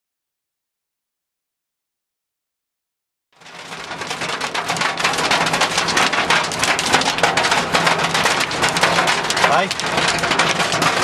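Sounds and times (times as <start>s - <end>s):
hail and rain drumming on car roof: 3.4s - 11.0s.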